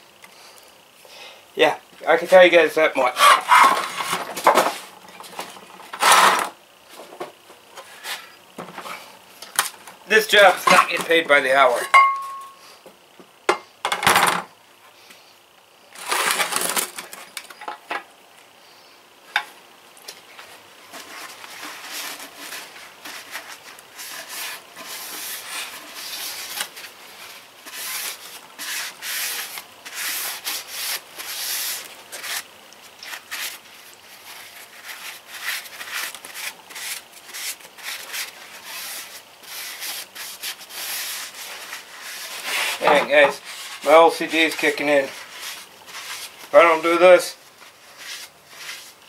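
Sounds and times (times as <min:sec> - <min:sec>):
hand rubbing strokes: 0:20.9 - 0:32.5, 0:33.1 - 0:46.8, 0:47.4 - 0:49.0
short scrape: 0:38.6 - 0:43.9.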